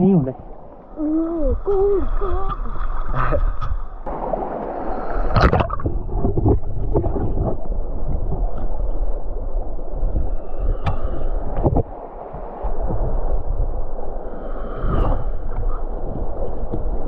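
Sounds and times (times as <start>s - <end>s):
underwater stream rushing and gurgling: 0.0s - 17.0s.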